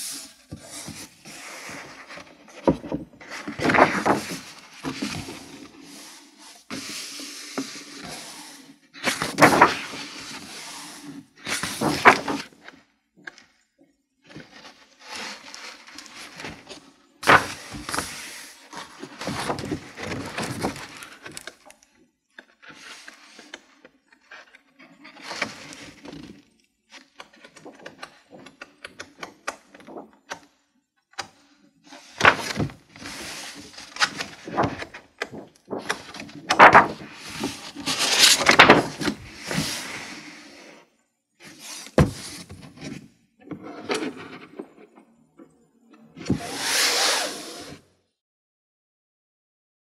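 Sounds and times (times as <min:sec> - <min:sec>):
book pages rustling and flapping: 0:00.0 - 0:12.8, 0:14.3 - 0:21.8, 0:24.5 - 0:30.5, 0:31.9 - 0:40.4, 0:41.4 - 0:43.1
hardcover book shutting thump: 0:42.0 - 0:42.6.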